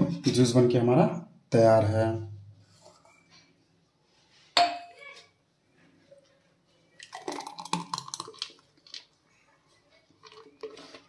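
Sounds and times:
glass ringing on stone counter: 4.6s - 5.0s
thick liquid pouring into a glass: 7.0s - 9.2s.

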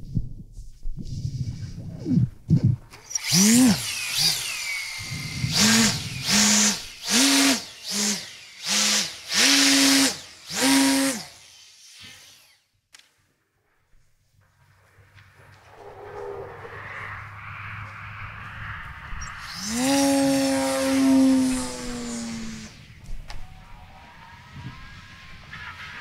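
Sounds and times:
glider whooshing past: 15.4s - 26.0s.

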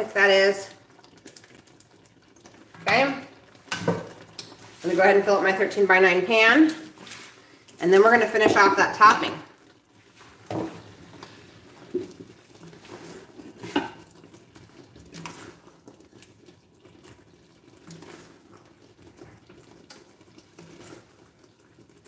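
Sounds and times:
spoon scraping a pot: 10.7s - 14.3s.

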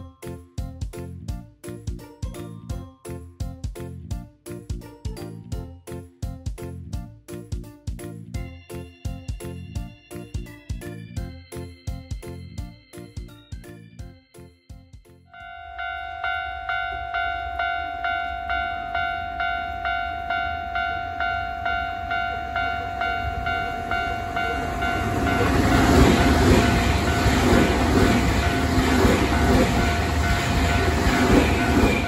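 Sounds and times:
level-crossing bell ringing: 15.3s - 32.0s
electric train passing: 15.4s - 32.0s
train wheel clatter: 23.6s - 32.0s.

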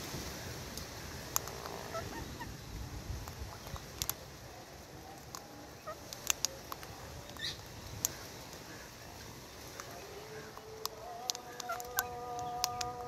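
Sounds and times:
parrots chirping and clicking: 0.7s - 2.5s, 3.2s - 4.2s, 5.2s - 8.6s, 9.6s - 13.0s.

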